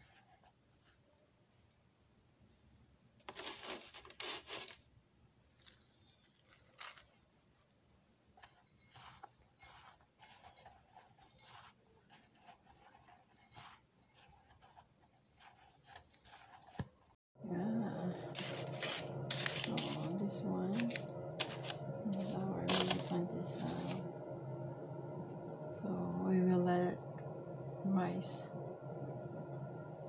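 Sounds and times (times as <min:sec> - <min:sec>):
breadcrumbs rustling and scraping: 0:03.3 - 0:04.9, 0:05.6 - 0:17.2, 0:17.9 - 0:24.1.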